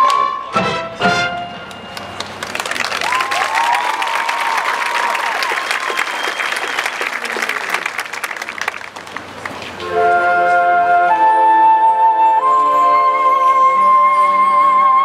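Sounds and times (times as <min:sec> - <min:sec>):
marching band playing held chords: 0:00.5 - 0:03.2, 0:08.7 - 0:14.2
audience applause: 0:01.7 - 0:09.9
whistles from audience: 0:02.8 - 0:08.4.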